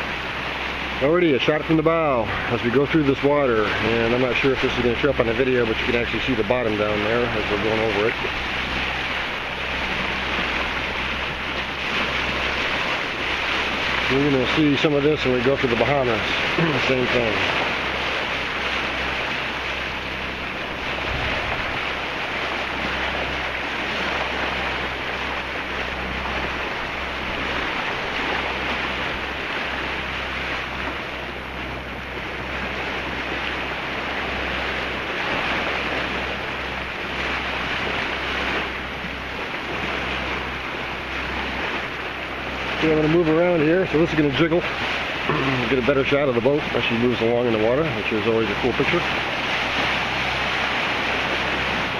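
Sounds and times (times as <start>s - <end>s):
steady low hum: 0.0s - 51.9s
water rushing along boat bow: 0.0s - 51.9s
wind on microphone: 15.7s - 42.6s.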